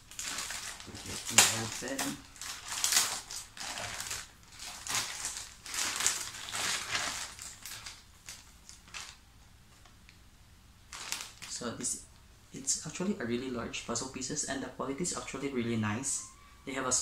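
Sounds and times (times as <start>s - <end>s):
plastic bag crinkling: 0.0s - 9.3s, 10.9s - 11.9s.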